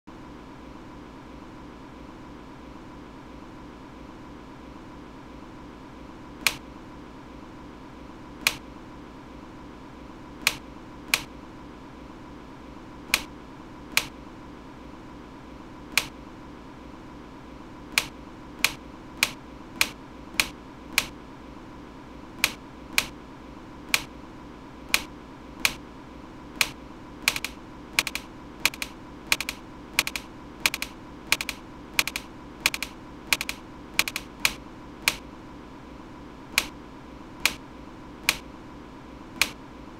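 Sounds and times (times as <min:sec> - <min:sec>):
sharp single clicks: 0:06.4 - 0:06.6, 0:08.4 - 0:08.6, 0:10.4 - 0:11.3, 0:13.1 - 0:13.3, 0:13.9 - 0:14.2, 0:15.9 - 0:16.2, 0:17.9 - 0:21.2, 0:22.4 - 0:23.2, 0:23.9 - 0:24.1, 0:24.9 - 0:25.8, 0:26.6 - 0:35.2, 0:36.6 - 0:36.8, 0:37.4 - 0:37.6, 0:38.2 - 0:38.5, 0:39.4 - 0:39.6.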